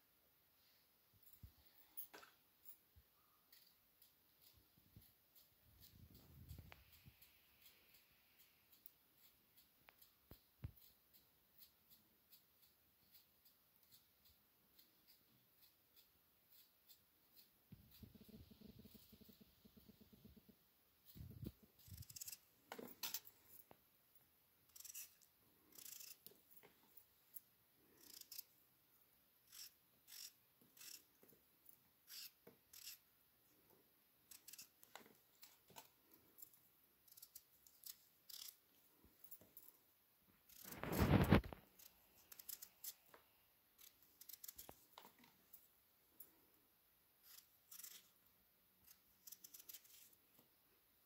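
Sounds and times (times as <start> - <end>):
knife scraping fruit skin: 3.2 - 19.9, 21.0 - 23.5, 24.7 - 26.7, 27.9 - 28.5, 29.4 - 31.2, 32.0 - 33.1, 34.3 - 38.7, 40.4 - 45.3, 47.2 - 48.2, 48.8 - 50.2.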